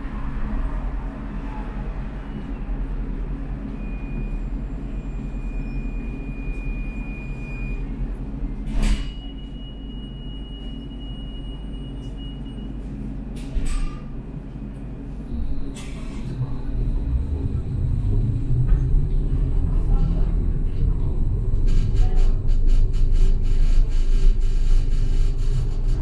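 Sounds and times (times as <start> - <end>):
tram humming: 0.0 - 26.0
street traffic passing: 14.4 - 26.0.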